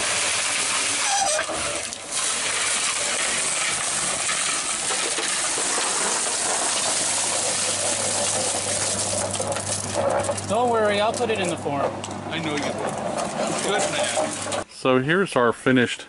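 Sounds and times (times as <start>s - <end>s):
wet concrete pouring from mixer: 0.0s - 11.8s, 12.4s - 14.7s.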